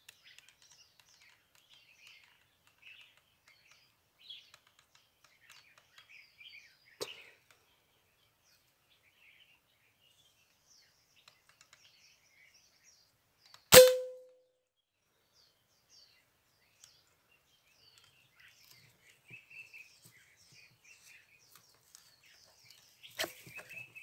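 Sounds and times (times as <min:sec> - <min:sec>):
faint bird chirps: 0:00.0 - 0:24.0
air rifle shot: 0:13.7 - 0:14.2.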